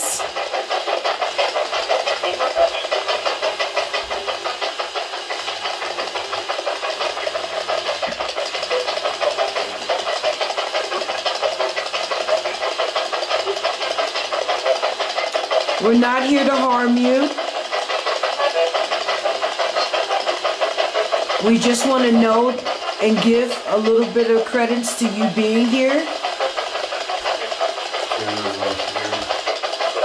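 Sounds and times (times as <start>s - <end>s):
choppy radio static: 0.0s - 20.5s, 21.2s - 30.0s
snatches of radio sound: 1.9s - 3.2s, 28.1s - 29.4s.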